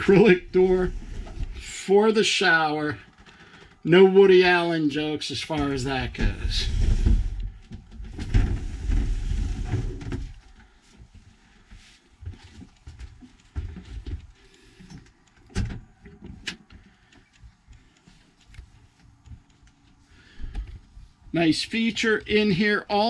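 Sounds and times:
sharp clicks: 12.6 - 23.0.

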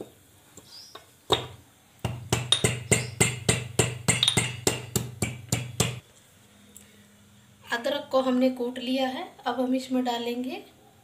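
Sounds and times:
pestle knocking in steel mortar: 1.3 - 6.0.

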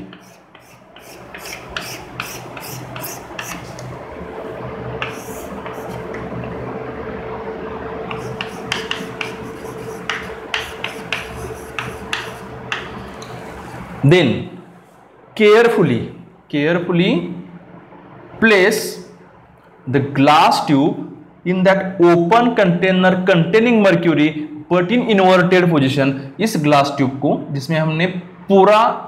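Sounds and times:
chalk scraping on blackboard: 0.0 - 3.9, 5.0 - 6.3, 8.1 - 14.0.

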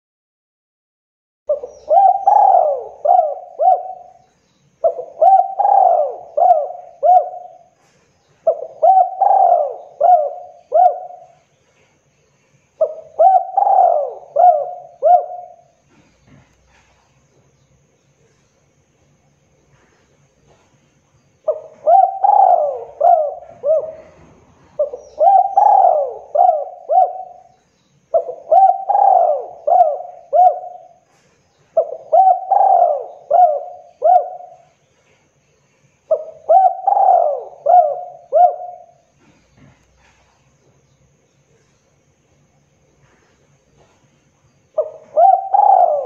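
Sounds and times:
dove cooing: 1.5 - 11.5, 12.8 - 17.0, 21.4 - 34.8, 36.1 - 40.3, 44.7 - 46.0.

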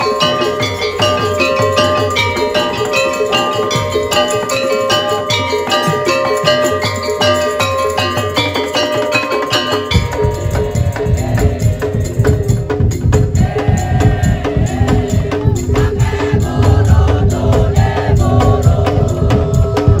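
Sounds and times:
wavering melody line: 0.0 - 13.5
fast percussion ensemble drumming: 0.0 - 20.0.

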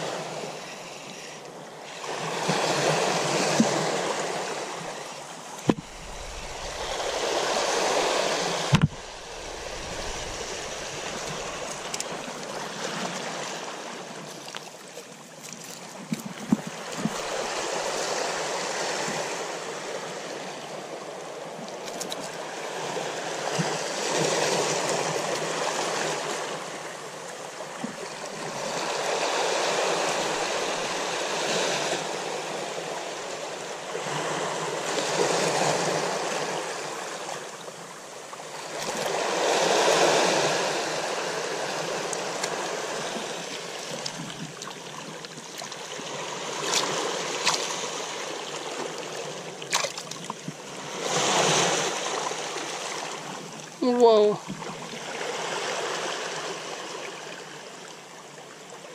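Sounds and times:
waves washing onto rocky shore: 0.0 - 58.4.

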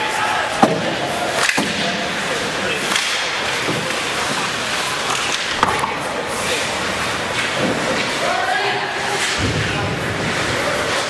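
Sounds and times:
players knocking into boards: 5.1 - 6.1.

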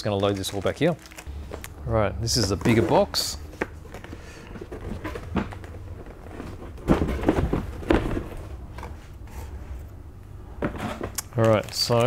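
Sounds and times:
cardboard scraping and rubbing: 2.3 - 9.9.

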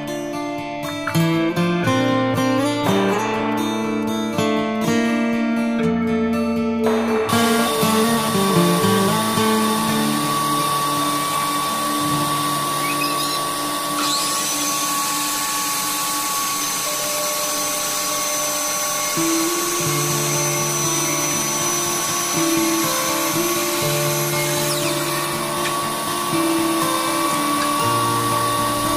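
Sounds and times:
background music: 0.0 - 14.2, 15.0 - 28.9
power tool motor whining: 7.3 - 28.9.

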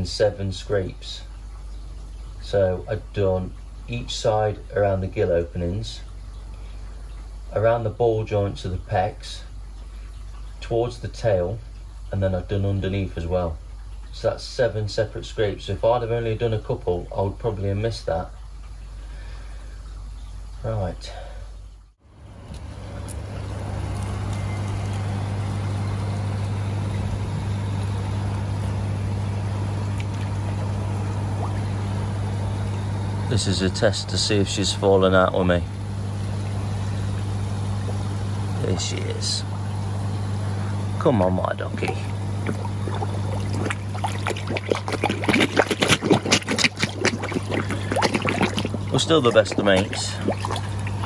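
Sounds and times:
pump humming and hissing: 0.0 - 51.0
fish splashing and slurping: 9.4 - 12.1, 21.6 - 51.0.

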